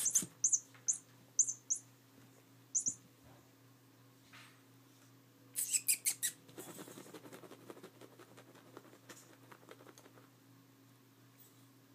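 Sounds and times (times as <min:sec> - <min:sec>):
kittens squeaking: 0:00.0 - 0:01.9, 0:02.7 - 0:03.0, 0:05.6 - 0:06.4.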